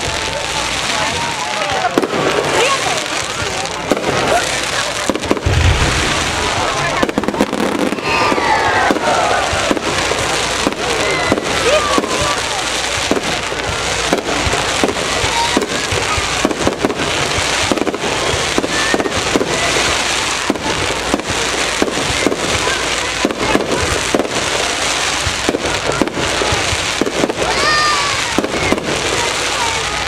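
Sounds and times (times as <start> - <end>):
fireworks bursting: 0.0 - 30.0.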